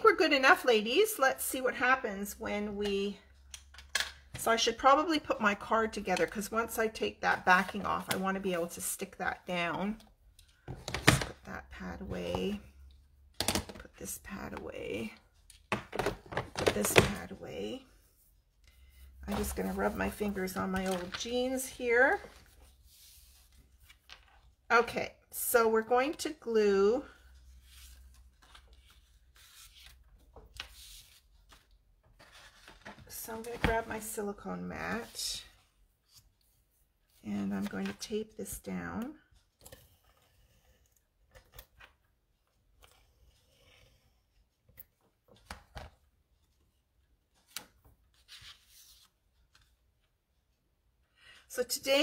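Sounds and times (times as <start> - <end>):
paper rustling: 27.6 - 34.0.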